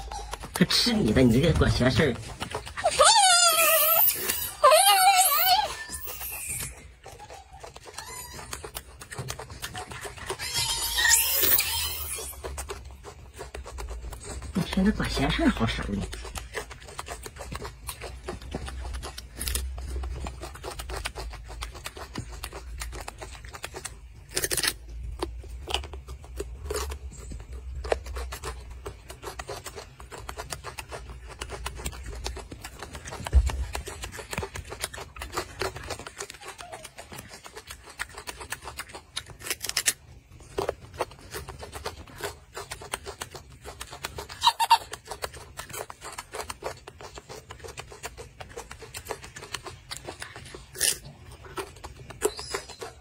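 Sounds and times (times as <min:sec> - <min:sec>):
monkey chewing fruit: 0:00.0 - 0:53.0.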